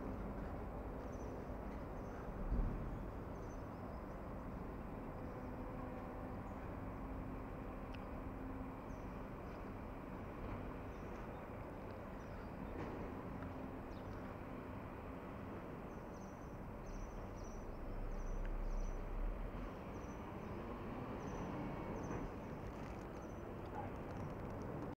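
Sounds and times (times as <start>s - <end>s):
traffic hum: 0.0s - 24.9s
small birds chirping: 0.4s - 5.5s, 8.8s - 24.5s
vehicle passing: 17.1s - 24.6s.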